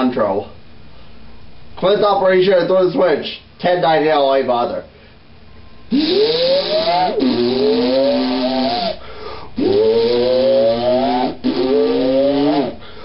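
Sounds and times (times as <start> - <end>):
hiss: 5.9 - 12.8.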